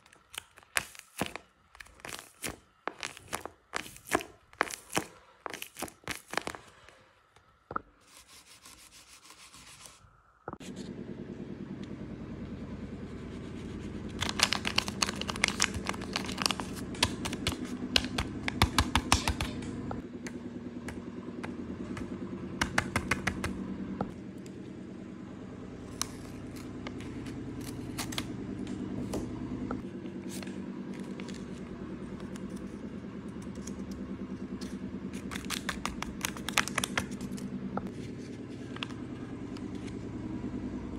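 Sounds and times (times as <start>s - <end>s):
paper crinkling and rustling: 0.0s - 7.0s, 14.1s - 18.6s, 30.2s - 32.7s
low hum: 9.9s - 40.9s.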